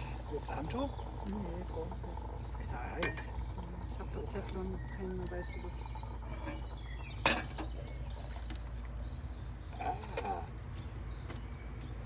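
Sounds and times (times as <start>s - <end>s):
coffee pouring into a bowl: 0.0s - 9.0s
metallic clink of coffee pot: 3.0s - 3.5s, 7.2s - 7.7s.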